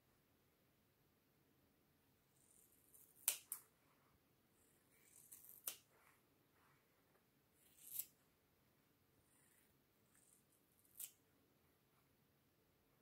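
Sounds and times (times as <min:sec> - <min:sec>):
scissors snipping hair: 0:02.8 - 0:03.6, 0:05.0 - 0:05.9, 0:07.7 - 0:08.2, 0:10.8 - 0:11.2.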